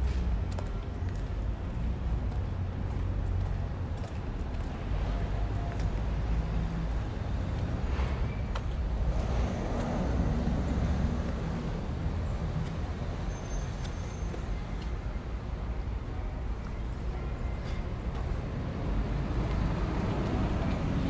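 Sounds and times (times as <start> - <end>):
traffic rumble: 0.0 - 21.0
vehicle passing: 4.8 - 13.2.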